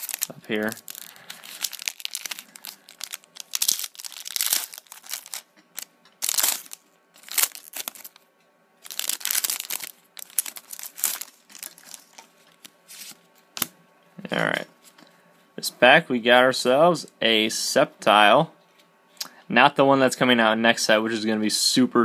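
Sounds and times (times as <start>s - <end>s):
foil wrapper tearing and crinkling: 0.0s - 8.2s, 8.8s - 12.2s.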